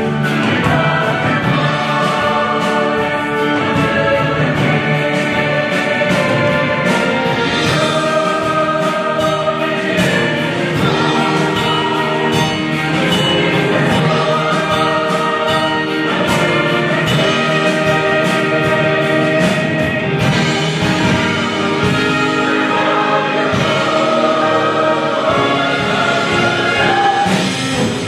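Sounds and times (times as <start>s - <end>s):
mixed choir singing: 0.0s - 28.0s
orchestra of strings flute and piano: 5.7s - 28.0s.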